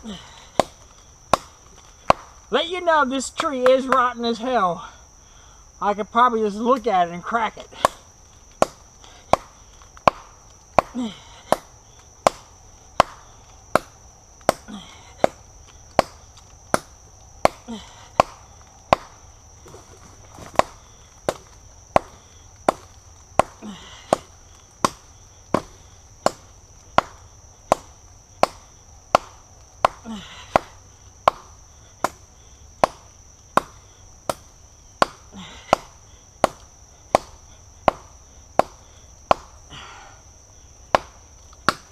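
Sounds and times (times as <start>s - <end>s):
knife chopping into tree trunk: 8.6s - 13.2s, 18.2s - 30.7s, 32.8s - 39.6s, 40.9s - 41.9s.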